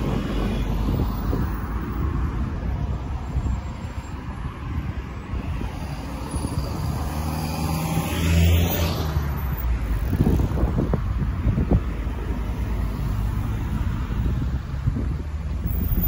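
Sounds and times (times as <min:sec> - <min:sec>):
road traffic rumble: 0:00.0 - 0:16.0
car passing close: 0:05.8 - 0:10.9.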